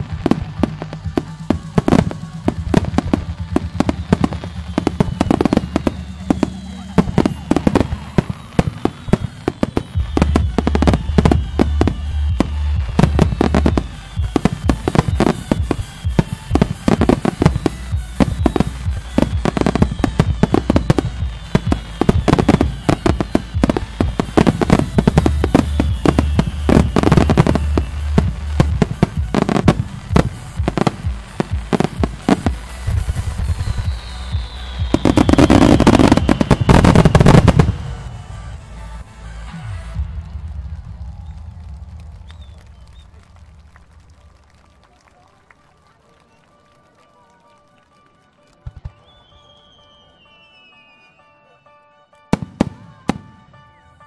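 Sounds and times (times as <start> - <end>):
firework bangs and cracks: 0.0 - 45.0
loud crackling volley: 0.0 - 50.7
whistling firework shells: 1.6 - 31.0, 31.7 - 38.4, 40.5 - 44.8, 48.8 - 51.6.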